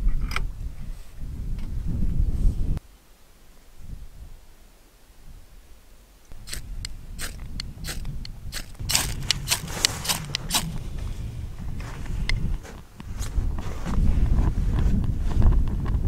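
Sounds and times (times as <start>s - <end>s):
knife scraping ferrocerium rod: 6.5s - 10.8s.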